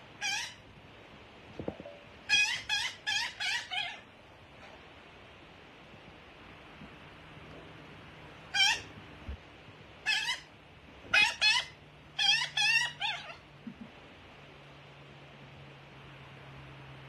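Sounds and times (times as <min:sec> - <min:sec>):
magpie fledgling begging calls: 0:10.1 - 0:10.5, 0:11.2 - 0:13.4.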